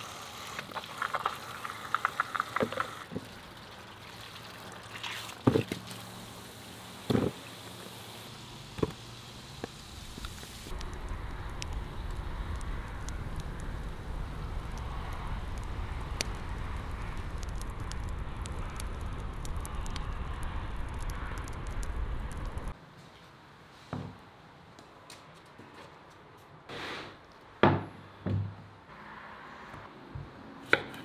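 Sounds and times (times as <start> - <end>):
low outdoor rumble: 8.1 - 22.8.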